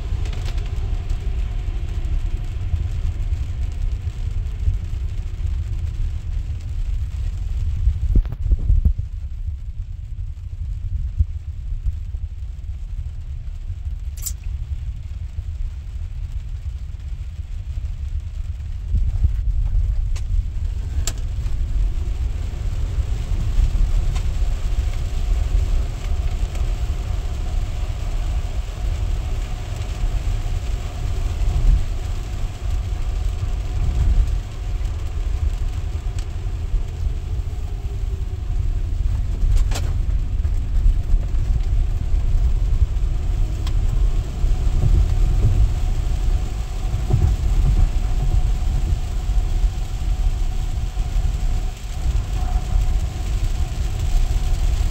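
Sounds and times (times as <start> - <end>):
tyre and road rumble: 0.0 - 54.9
sharp click: 14.2 - 14.5.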